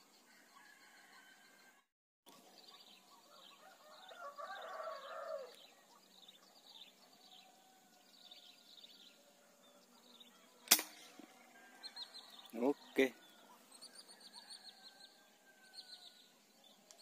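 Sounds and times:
air rifle shot: 0:10.6 - 0:11.2.

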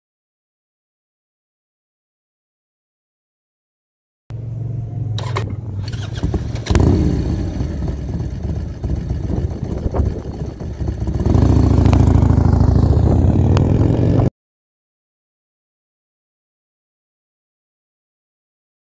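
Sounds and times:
motorcycle engine idling and accelerating: 0:04.3 - 0:14.3.

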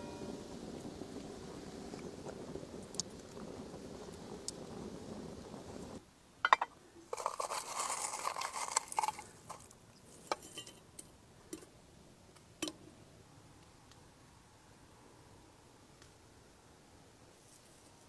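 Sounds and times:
pot boiling: 0:00.0 - 0:11.7
glass teapot clinks: 0:06.4 - 0:06.7.

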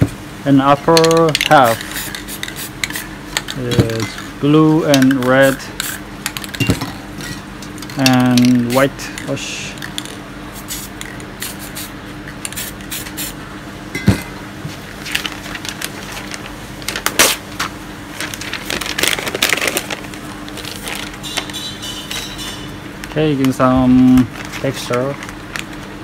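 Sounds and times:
paper being crumpled: 0:14.9 - 0:17.4, 0:18.1 - 0:21.6, 0:24.0 - 0:26.0.

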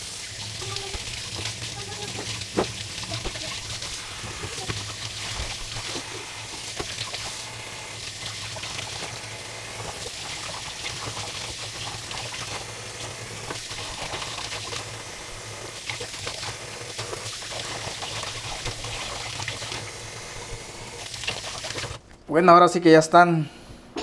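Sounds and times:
water splashing: 0:00.0 - 0:12.6
tap water running: 0:00.0 - 0:22.2.

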